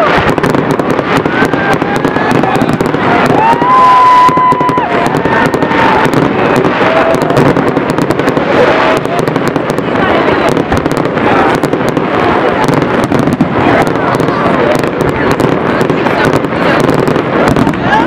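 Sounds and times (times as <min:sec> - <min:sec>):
crowd calling out and whooping: 0:00.0 - 0:18.0
fireworks bursting and crackling: 0:00.0 - 0:18.0.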